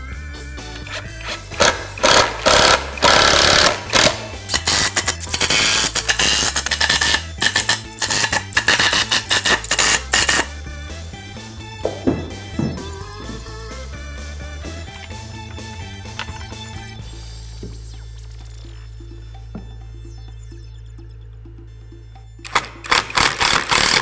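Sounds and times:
background music: 0.0s - 24.0s
power screwdriver driving screws: 0.8s - 10.5s, 22.5s - 24.0s.

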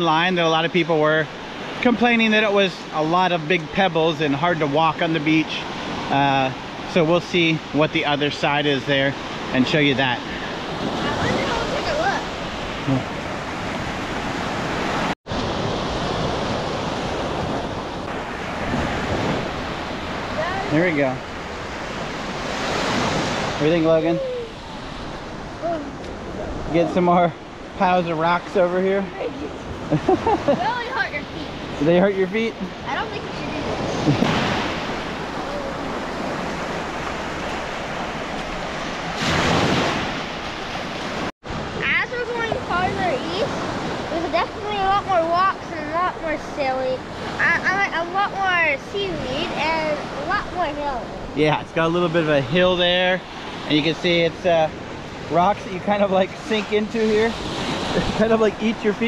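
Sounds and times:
surf wash: 0.0s - 59.0s
wind buffeting microphone: 9.2s - 27.8s, 28.4s - 53.8s
waves washing on pebbles: 32.9s - 45.3s.

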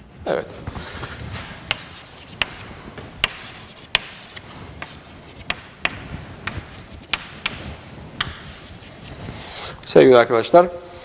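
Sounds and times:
chalk tapping on blackboard: 1.7s - 9.1s.

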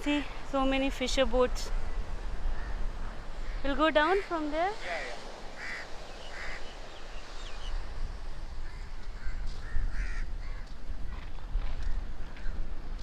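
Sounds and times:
wind buffeting microphone: 0.0s - 13.0s
short bird calls: 4.8s - 7.7s.

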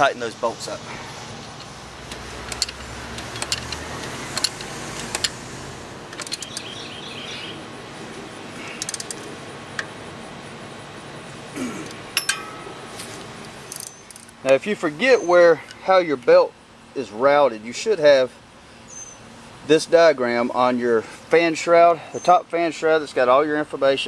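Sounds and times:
wrench clicking on bolts: 1.6s - 5.4s, 6.1s - 6.7s, 8.8s - 9.2s, 12.2s - 12.6s, 13.7s - 14.4s
low hum: 7.7s - 14.3s.

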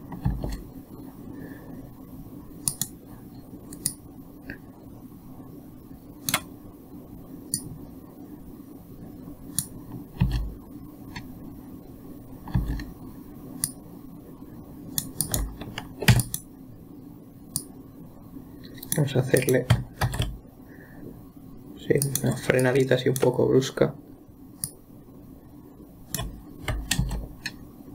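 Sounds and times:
low steady hum: 0.0s - 27.9s
mouse clicks: 2.6s - 3.0s, 3.7s - 4.6s, 6.2s - 6.5s, 26.1s - 27.6s
keyboard key presses: 15.0s - 16.4s, 18.8s - 20.4s, 26.1s - 27.6s.

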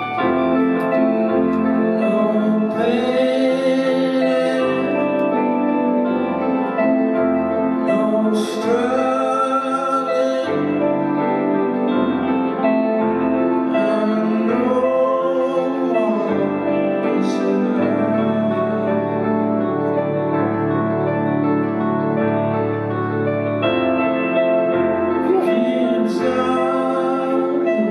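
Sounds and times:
piano chords: 0.0s - 27.9s
man singing: 0.9s - 11.9s, 13.6s - 20.3s, 25.1s - 27.9s.

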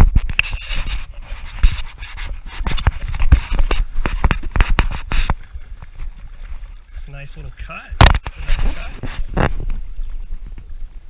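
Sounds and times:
rustles and knocks: 0.0s - 6.7s
footsteps through tall grass: 0.5s - 7.1s.

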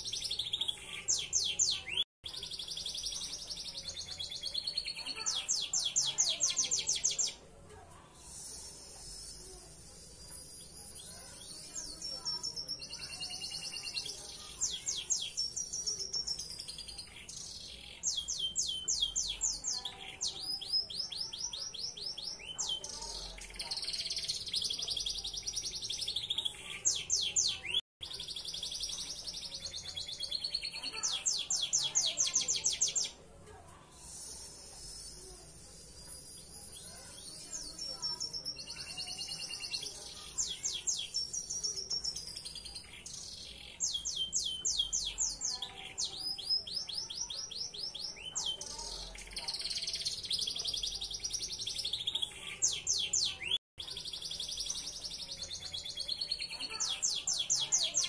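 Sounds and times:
canary singing trills: 0.0s - 7.4s, 8.2s - 33.2s, 33.9s - 58.0s.

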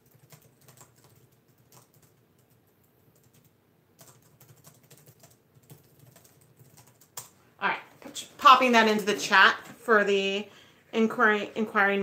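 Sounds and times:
typing on laptop keyboard: 0.0s - 7.4s.

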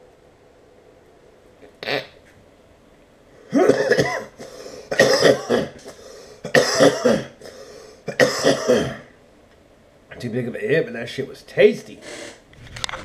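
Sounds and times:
man coughing: 3.5s - 9.1s.

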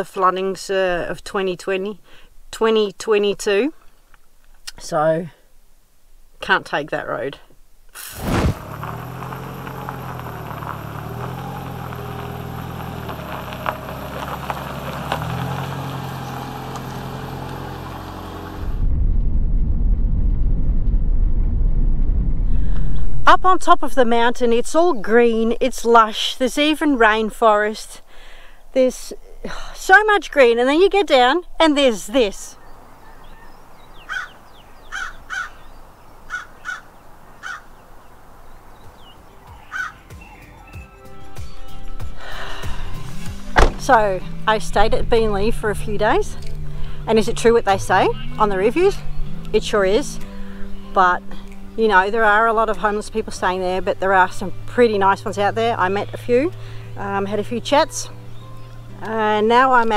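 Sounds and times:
van engine passing on gravel: 8.0s - 18.9s, 29.8s - 59.9s
deep rumble of driving: 8.2s - 27.8s, 29.5s - 59.9s
small birds calling: 32.3s - 42.3s, 47.8s - 52.1s, 55.6s - 59.6s
crow cawing: 33.1s - 35.6s, 36.2s - 37.8s, 39.6s - 40.0s.

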